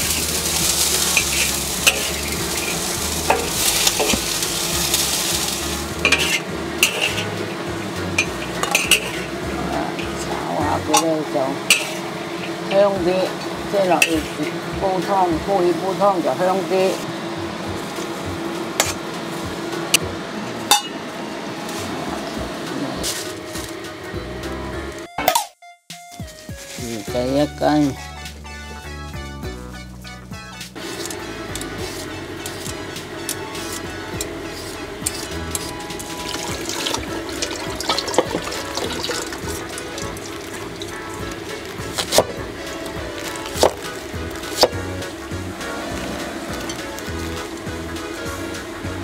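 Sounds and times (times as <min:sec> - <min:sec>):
water running into a sink: 0:00.0 - 0:06.2, 0:36.0 - 0:44.6
soft background music: 0:00.0 - 0:11.7, 0:25.9 - 0:49.0
potatoes being peeled: 0:00.0 - 0:18.2, 0:30.8 - 0:49.0
steady low hum: 0:00.0 - 0:25.1, 0:26.8 - 0:49.0
metal spatula clinking on pot: 0:06.1 - 0:07.3, 0:08.2 - 0:09.3.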